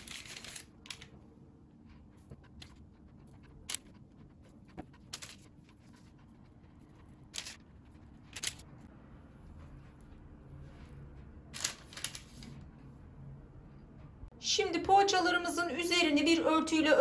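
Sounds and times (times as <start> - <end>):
parchment paper rustling: 0.0 - 12.8.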